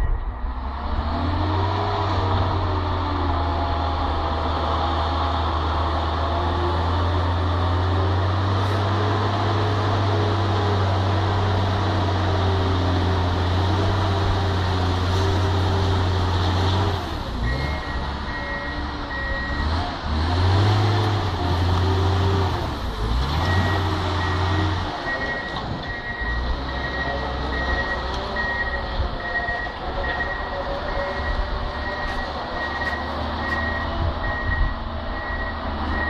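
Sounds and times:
reversing alarm beeping: 0.0s - 0.4s, 17.4s - 19.7s, 23.4s - 36.0s
diesel engine running: 0.0s - 36.0s.

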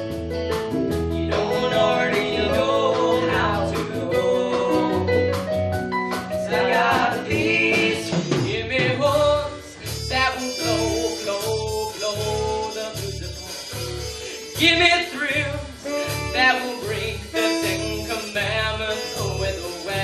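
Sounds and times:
live band playing: 0.0s - 20.0s
steady bass notes: 0.0s - 20.0s
young male voices singing: 1.3s - 5.3s, 6.4s - 20.0s.

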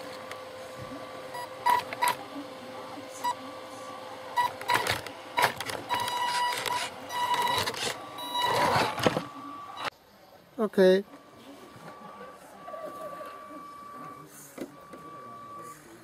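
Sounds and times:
faint motor whine: 0.0s - 16.0s
short electronic beeps: 5.9s - 9.0s.

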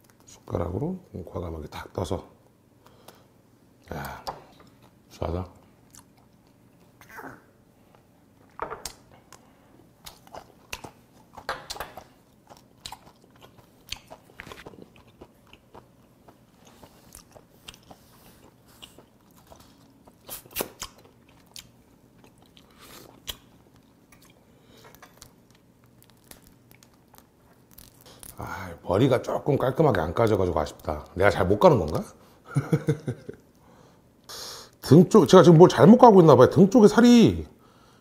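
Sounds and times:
wet chewing mouth clicks: 10.0s - 24.4s.

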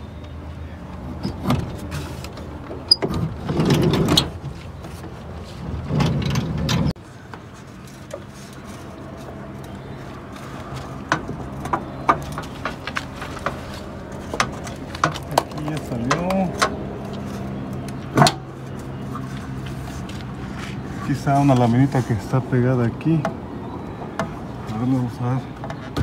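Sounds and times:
sliding door rolling shut: 2.8s - 4.4s, 5.7s - 7.0s.

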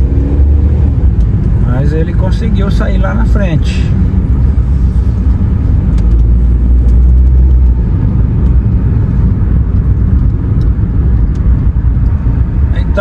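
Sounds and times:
car cabin road and engine rumble: 0.0s - 13.0s.

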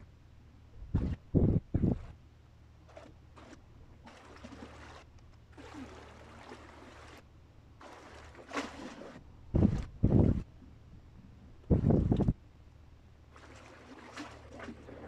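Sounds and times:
muffled blasts on microphone: 0.8s - 2.1s, 9.5s - 10.5s, 11.7s - 12.4s
sea water washing at shore: 3.0s - 10.4s, 13.3s - 15.0s.

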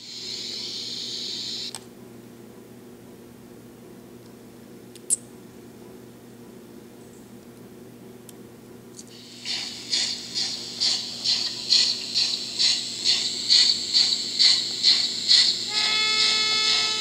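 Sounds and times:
model locomotive steam chuffs: 0.0s - 1.7s, 9.1s - 17.0s.

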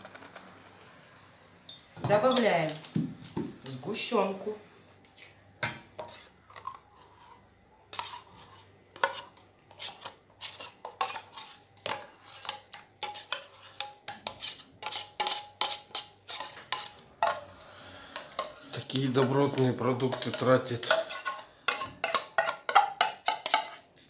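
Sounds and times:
metal spoon scraping a tin: 5.6s - 17.5s, 18.1s - 23.9s.

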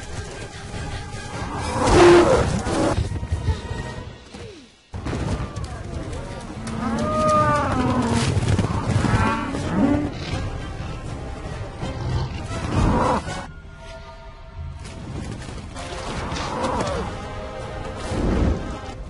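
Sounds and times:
film music: 0.0s - 19.0s
herd rumbling: 5.0s - 13.5s.

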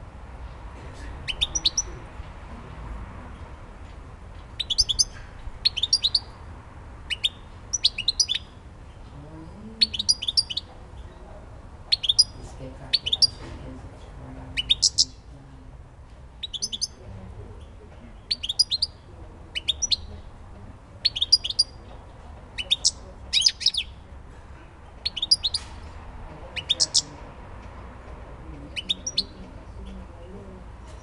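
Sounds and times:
goldfinch twittering: 4.6s - 6.3s, 21.0s - 21.8s, 25.0s - 25.7s, 28.8s - 29.4s.

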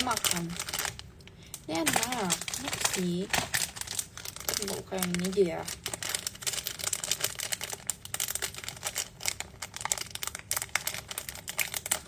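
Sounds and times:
snack packet crinkling: 0.0s - 12.0s.

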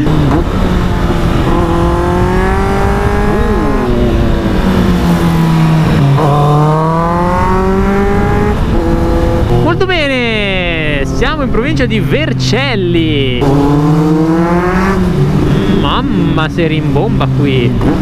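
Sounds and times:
wind rush: 0.0s - 9.9s
motorcycle engine revving: 0.0s - 18.0s.

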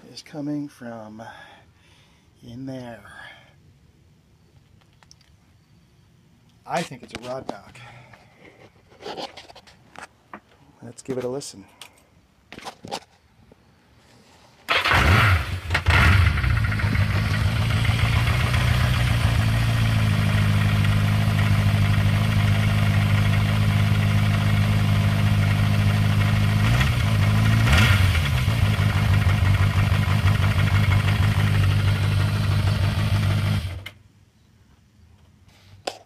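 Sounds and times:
motorcycle engine idling with clatter: 14.7s - 33.9s
motorcycle engine revving: 14.7s - 33.9s.

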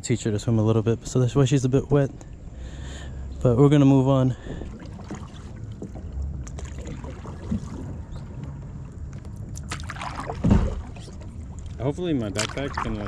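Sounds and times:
paddle splashing water: 4.2s - 13.0s.

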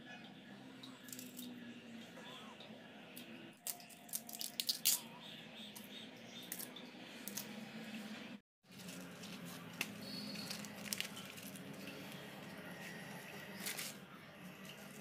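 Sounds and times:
rustle of leafy greens: 8.7s - 14.0s.

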